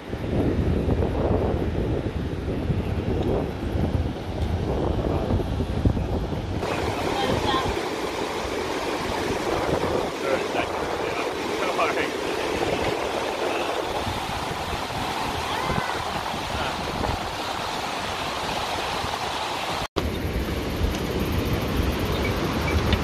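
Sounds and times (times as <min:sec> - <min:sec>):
river rushing: 0:00.0 - 0:23.0
wind rumbling on microphone: 0:00.0 - 0:23.0.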